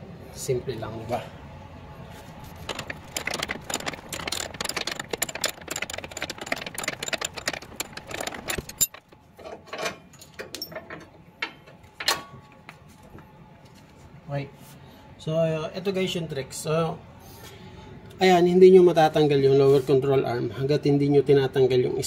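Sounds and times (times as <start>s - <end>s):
wrench clicking on metal: 2.6s - 9.0s.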